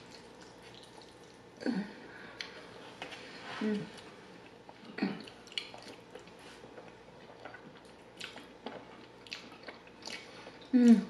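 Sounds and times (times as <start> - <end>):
wet mouth clicks and smacks eating: 0.1 - 1.4, 5.2 - 10.7.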